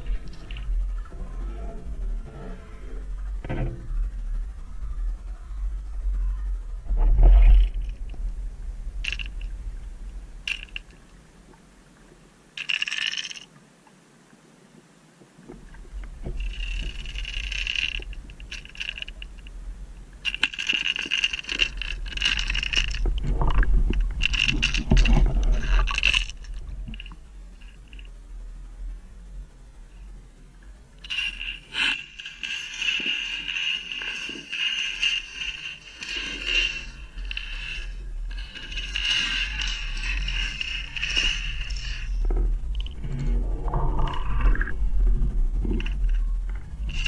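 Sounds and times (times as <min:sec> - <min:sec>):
fishing lure rattling underwater: 0:00.0 - 0:01.1, 0:09.0 - 0:09.7, 0:10.4 - 0:11.0, 0:12.6 - 0:13.6, 0:15.7 - 0:28.2, 0:31.0 - 0:47.0
low underwater rumble: 0:00.0 - 0:12.5, 0:15.4 - 0:47.0.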